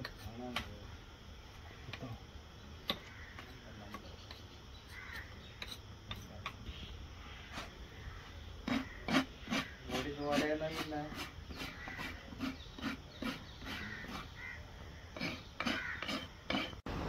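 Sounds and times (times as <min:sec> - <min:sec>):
hoof knife scraping hoof: 0:04.2 - 0:06.6, 0:08.6 - 0:14.4, 0:15.2 - 0:16.8.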